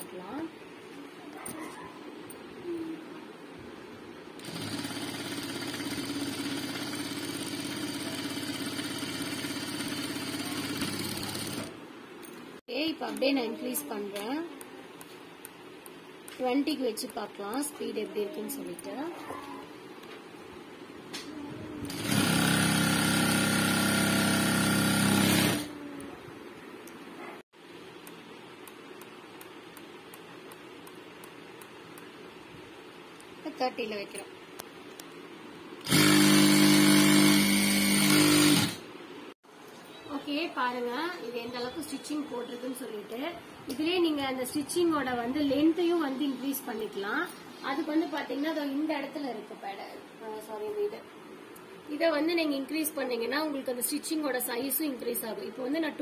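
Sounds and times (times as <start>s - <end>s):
sewing machine running: 4.4s - 11.7s, 21.9s - 25.7s, 35.8s - 38.8s.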